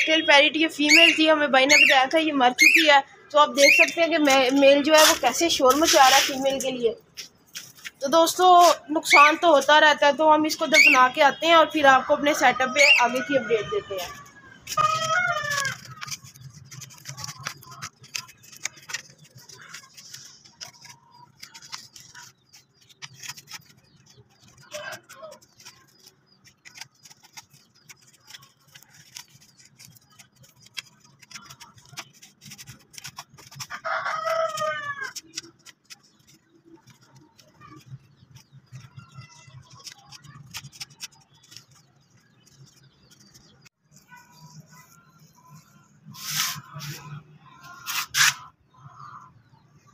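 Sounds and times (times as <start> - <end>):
digging dry soil in a flowerpot: 0.2 - 48.6
rooster crowing: 12.0 - 15.8, 33.8 - 35.2.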